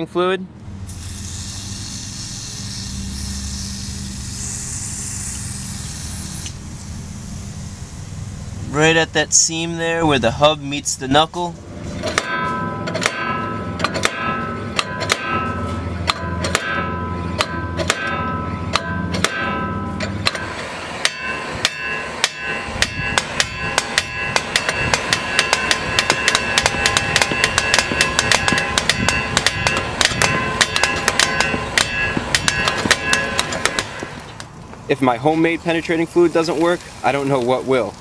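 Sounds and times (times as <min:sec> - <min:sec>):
hammer blows on metal: 0:11.9 - 0:34.2.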